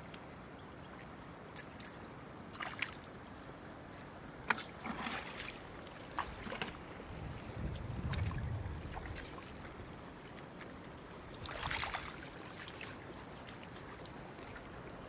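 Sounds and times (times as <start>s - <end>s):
water sloshing and splashing: 0.0s - 15.0s
short sharp splashes or knocks: 4.5s - 6.8s.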